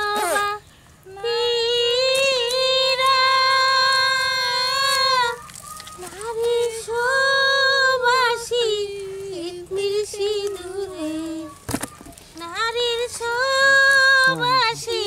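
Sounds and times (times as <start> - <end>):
high-pitched voice singing: 0.0 - 0.6, 10.1 - 15.0.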